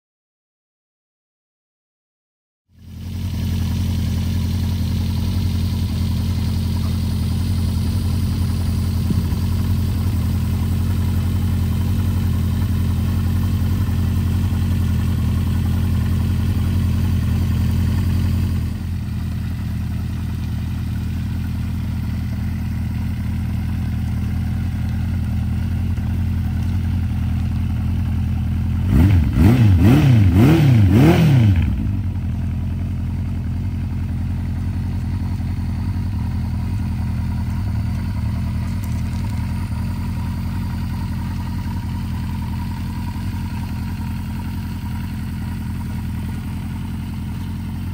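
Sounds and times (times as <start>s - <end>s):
motorcycle engine idling: 2.7s - 47.9s
engine revving in throttle blips: 28.7s - 32.2s.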